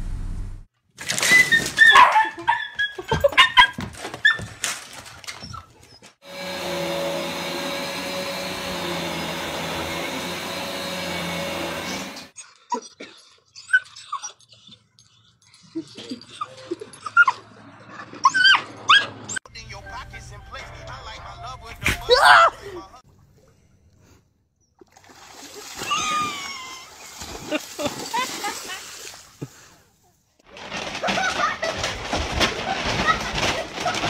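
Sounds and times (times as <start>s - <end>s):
dog whining and yelping: 1.2s - 4.5s, 12.4s - 15.0s, 15.7s - 19.4s
vacuum cleaner running: 6.2s - 12.4s.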